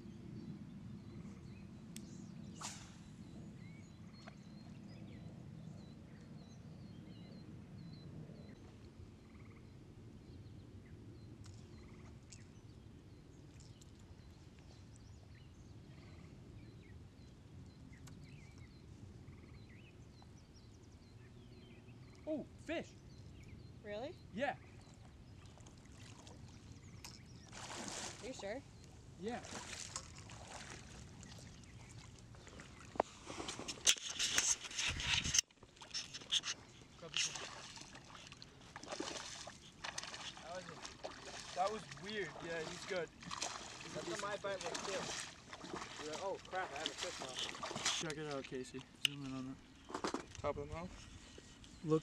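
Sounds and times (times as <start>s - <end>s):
faint bird chirps: 0.1s - 27.6s
splashing in shallow water: 25.2s - 28.6s, 29.3s - 49.0s.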